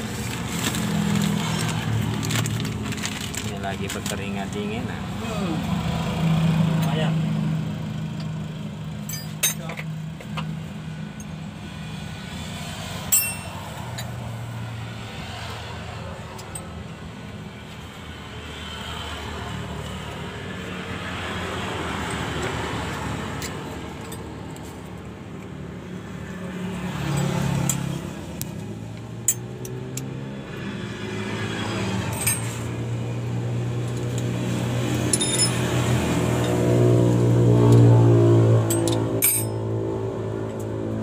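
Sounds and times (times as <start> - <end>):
passing traffic: 0.0 - 41.0
metallic clinks of wrenches: 9.0 - 9.8, 13.1 - 14.2, 32.1 - 32.6, 35.0 - 35.7, 38.7 - 39.6
engine running: 19.3 - 41.0.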